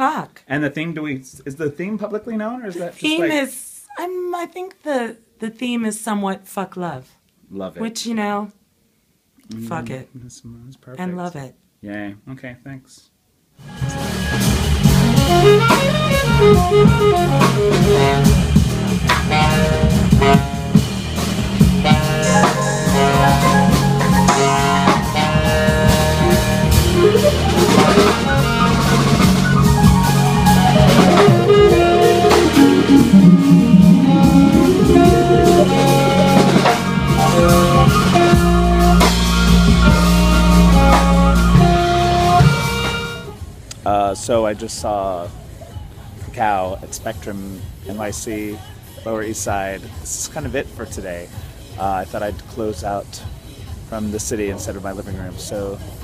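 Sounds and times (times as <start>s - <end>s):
saxophone melody: 13.6s - 43.5s
jazz combo playing live: 13.6s - 43.8s
deep low held note: 21.6s - 42.4s.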